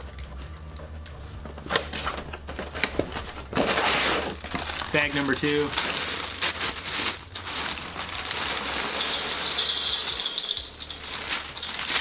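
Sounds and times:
plastic bag crinkling: 3.3s - 12.0s
cereal pouring into metal bowl: 7.9s - 12.0s.

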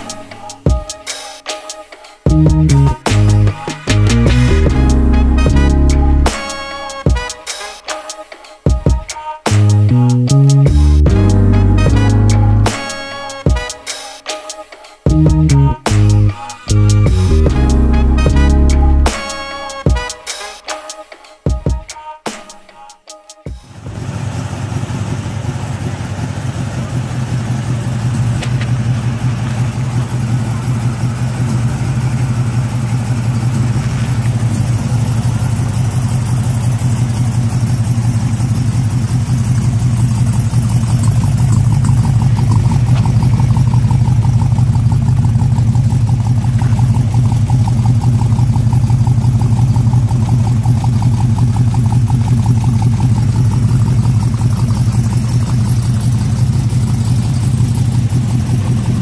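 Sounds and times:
pickup engine idling: 15.1s - 19.6s, 23.6s - 59.0s.

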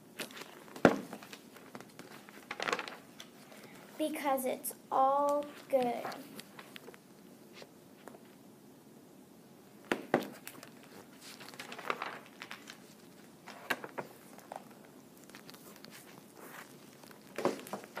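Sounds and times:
paper rustling: 0.2s - 3.7s, 10.1s - 18.0s
pages snapping: 9.9s - 18.0s.

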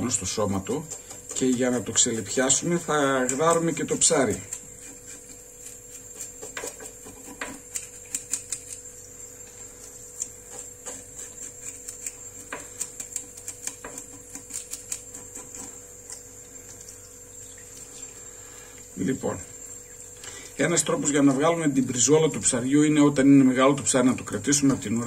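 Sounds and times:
fish scaler scraping scales: 0.4s - 9.0s, 10.0s - 16.2s.

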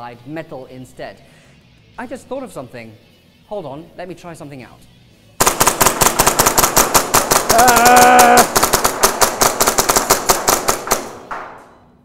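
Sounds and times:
rapid airsoft pistol shots: 5.4s - 11.6s
person shouting: 7.5s - 8.5s.

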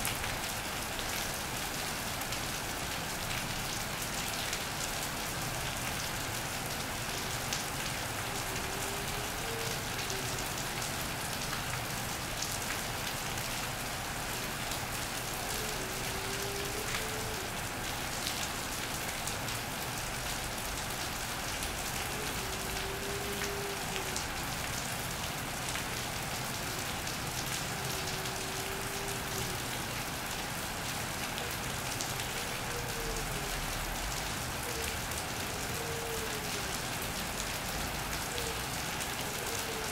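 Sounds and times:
rain on a metal roof: 0.0s - 39.9s
dove cooing: 8.3s - 10.6s, 15.3s - 17.6s, 21.8s - 24.3s, 26.8s - 29.7s, 31.4s - 33.7s, 34.6s - 36.8s, 38.2s - 39.9s.

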